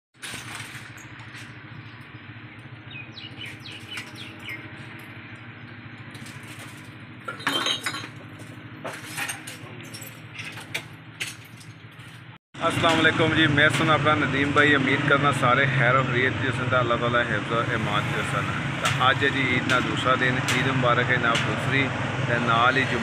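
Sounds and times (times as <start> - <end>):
glass and cans clinking: 7.3 - 11.8.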